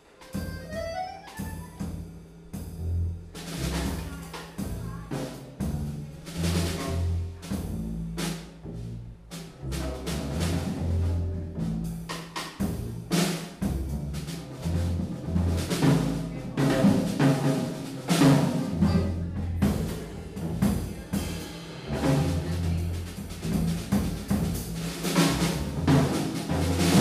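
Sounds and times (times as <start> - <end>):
drum and cymbal strikes: 0.0 - 27.0
accordion: 0.1 - 2.0
plucked double bass: 0.4 - 27.0.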